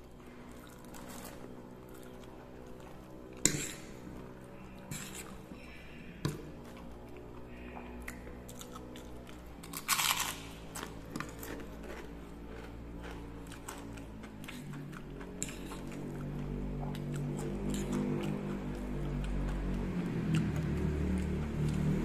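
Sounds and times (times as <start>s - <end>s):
chewing noodles: 6.6s - 22.0s
cracker crunching: 8.5s - 14.8s.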